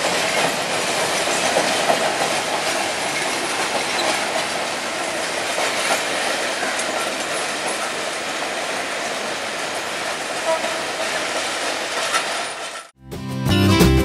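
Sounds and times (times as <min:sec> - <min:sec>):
clatter over rail joints: 0:00.0 - 0:12.9
train wheels rumbling on rails: 0:00.0 - 0:13.0.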